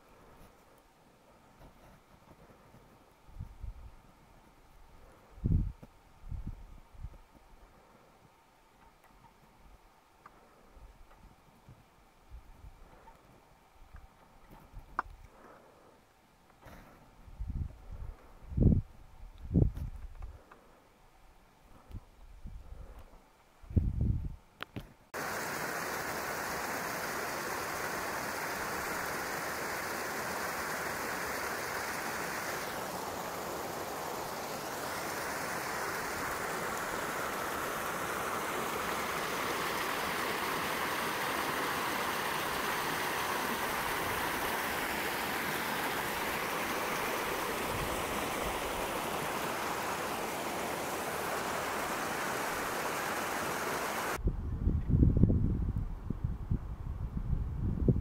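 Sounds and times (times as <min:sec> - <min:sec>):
creek running over rocks: 0:25.2 - 0:54.2.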